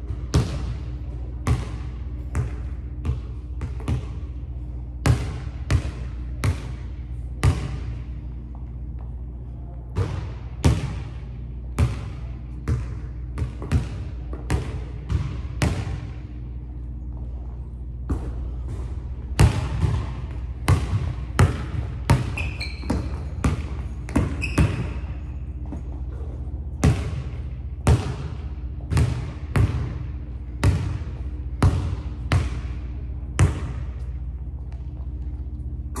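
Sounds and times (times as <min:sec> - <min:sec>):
steady low hum: 0:00.0 - 0:36.0
sneaker squeaks: 0:22.1 - 0:26.0.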